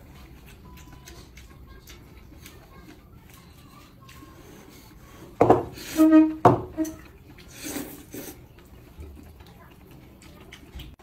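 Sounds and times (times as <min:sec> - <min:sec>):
faint eating clicks: 0:00.0 - 0:04.6, 0:07.0 - 0:11.0
noodles being slurped: 0:06.8 - 0:11.0.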